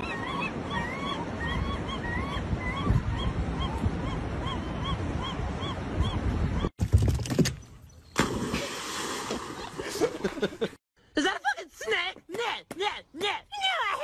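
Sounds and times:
gull calling: 0.0 - 6.7
wind on microphone: 0.0 - 6.7.

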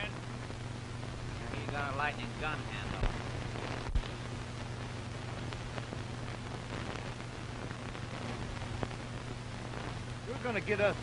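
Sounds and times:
film soundtrack hiss and hum: 0.0 - 11.0
sharp pop: 3.0 - 4.2.

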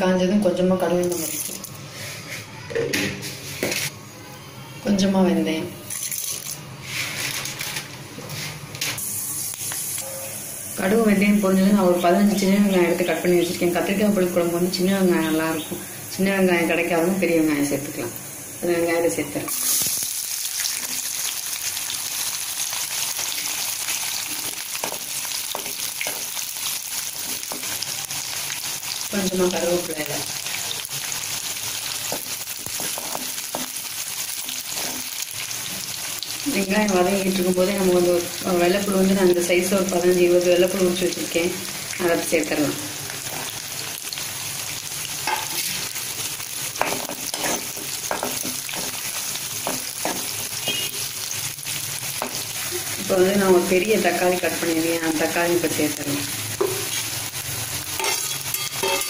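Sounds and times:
onions sizzling in hot oil: 0.8 - 2.2, 5.4 - 59.0
spatula stirring in a pan: 23.1 - 27.9, 31.5 - 36.3, 46.7 - 51.0
spoon scraping and knocking pan: 24.8 - 26.4, 32.1 - 33.8, 34.4 - 35.1, 46.8 - 50.4, 56.6 - 57.0, 58.0 - 59.0.

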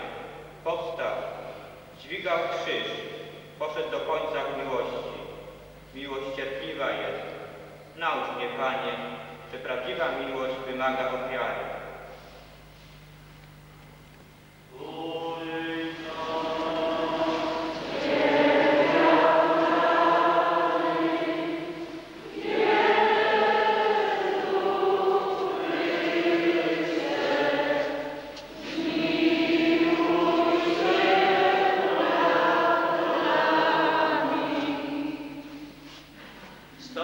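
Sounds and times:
congregation singing a hymn: 14.7 - 36.0.

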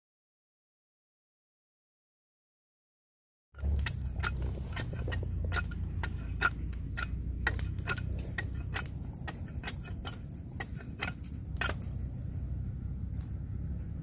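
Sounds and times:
knife chopping bamboo: 3.6 - 12.1
steady low rumble: 3.6 - 14.0.

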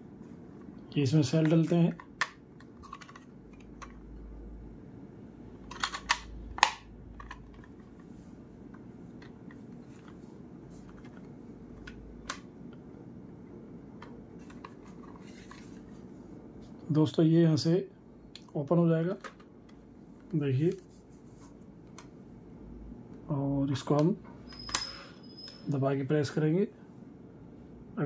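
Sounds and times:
plastic casing clicks: 5.7 - 7.7.

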